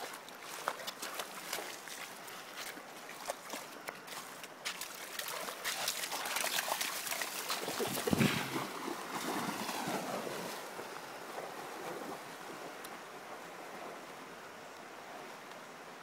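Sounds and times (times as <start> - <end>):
dog splashing through water: 0.0 - 12.7.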